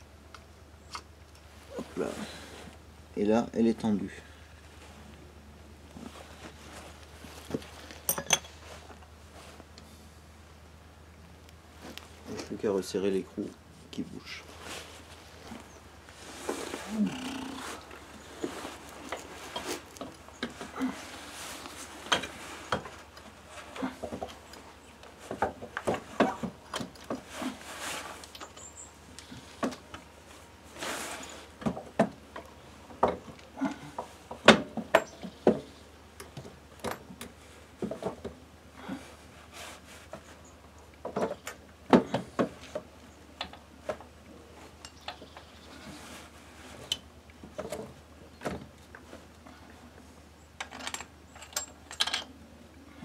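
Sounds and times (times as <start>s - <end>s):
hand tools clinking on metal: 8.0s - 8.6s
short rustles: 13.8s - 31.6s.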